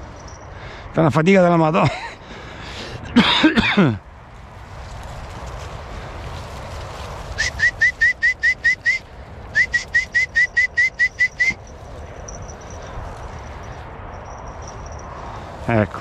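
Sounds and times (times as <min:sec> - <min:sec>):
bird calling sharp notes: 0:07.4 - 0:12.7.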